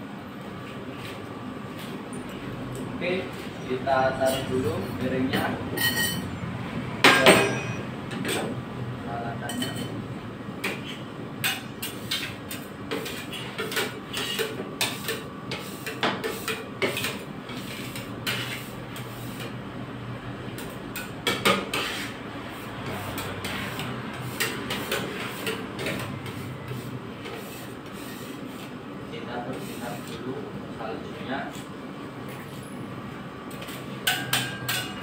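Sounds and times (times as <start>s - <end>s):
steel spatulas scraping metal plate: 13.0s - 19.4s, 21.5s - 22.2s.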